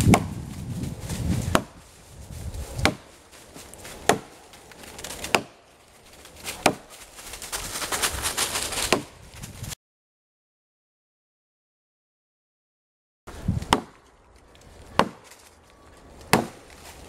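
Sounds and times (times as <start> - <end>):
axe chopping log: 0.0 - 0.4, 1.4 - 1.8, 2.8 - 3.1, 3.7 - 5.6, 6.4 - 6.9, 8.9 - 9.1, 13.5 - 14.1, 14.9 - 15.4, 16.2 - 16.8.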